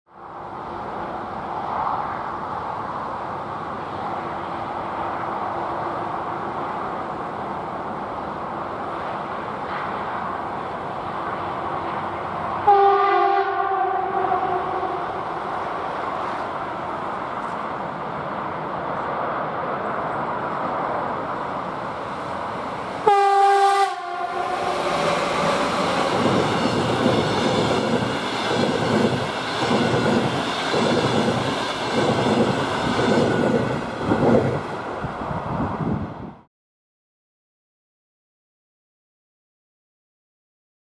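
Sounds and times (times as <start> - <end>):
train passing rush: 0.1 - 36.5
train horn blast: 12.6 - 15.2, 23.0 - 25.0.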